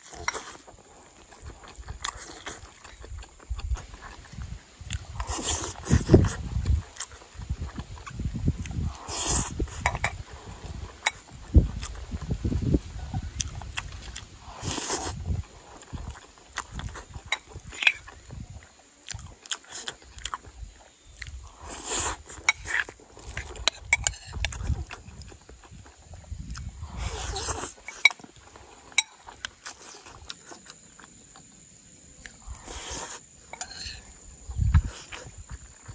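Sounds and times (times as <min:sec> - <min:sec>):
person chewing: 0:00.0 - 0:35.9
short breathy hiss: 0:32.4 - 0:33.3
spoon scraping ceramic bowl: 0:33.6 - 0:34.0.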